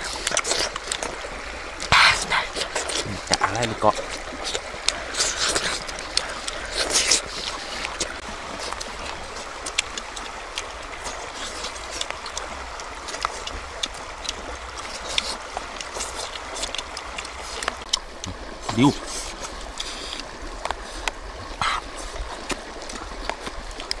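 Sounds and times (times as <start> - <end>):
stream rushing over rocks: 0.0 - 24.0.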